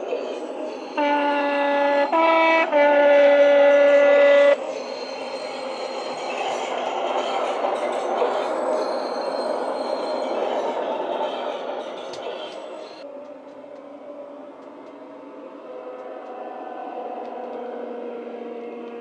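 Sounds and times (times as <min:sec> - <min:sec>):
two-tone train horn: 0:00.8 - 0:04.7, 0:15.7 - 0:19.0.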